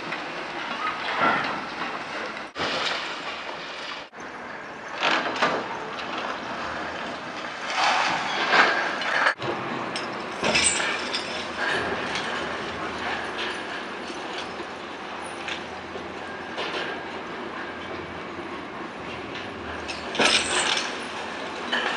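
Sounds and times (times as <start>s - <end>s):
excavator machine noise: 0.0s - 21.9s
concrete crunching and clattering: 5.0s - 18.0s, 19.1s - 21.9s.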